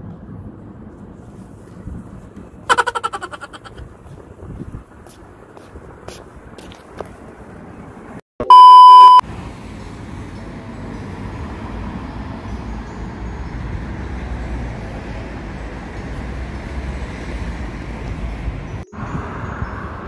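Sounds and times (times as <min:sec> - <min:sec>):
low traffic rumble: 0:00.0 - 0:08.2, 0:09.2 - 0:20.0
street ambience: 0:00.0 - 0:20.0
loud electronic beep: 0:08.4 - 0:09.2.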